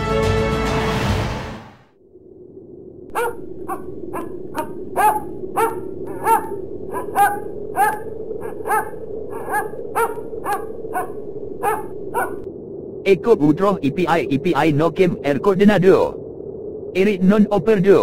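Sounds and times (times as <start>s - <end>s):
steady low hum: 1.9s - 18.0s
dog barking: 3.1s - 12.4s.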